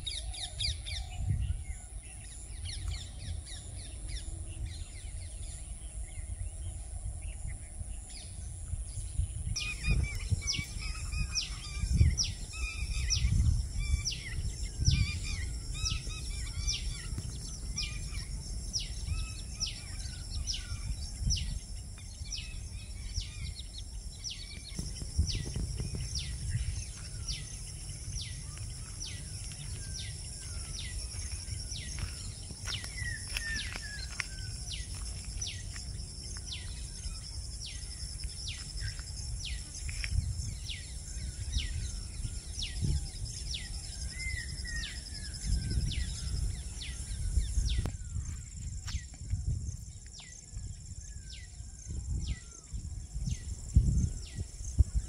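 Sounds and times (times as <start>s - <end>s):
birds chirping: 0.0s - 49.2s
low uneven rumble: 10.4s - 44.4s.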